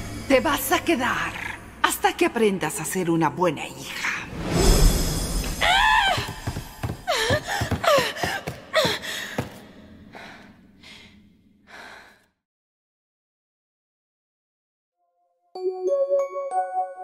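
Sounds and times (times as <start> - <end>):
girl gasping and sobbing: 5.6 - 11.1.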